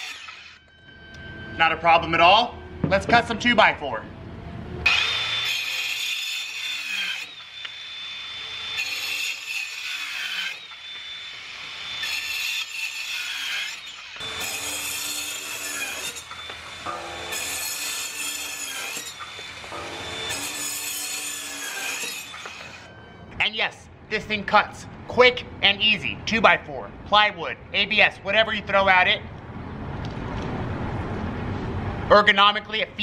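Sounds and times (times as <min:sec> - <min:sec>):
circular saw cutting wood: 0:00.0 - 0:00.6, 0:04.8 - 0:23.0.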